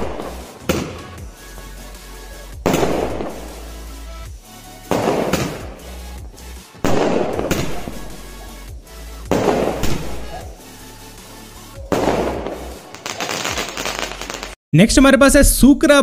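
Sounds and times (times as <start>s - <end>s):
firework shells banging: 4.8s - 5.9s, 6.8s - 8.5s.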